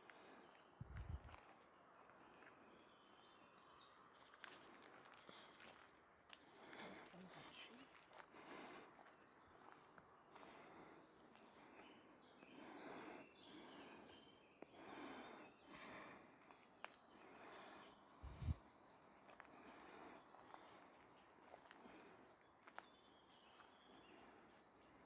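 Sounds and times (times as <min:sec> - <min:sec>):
footsteps on gravel: 0:04.3 - 0:10.5.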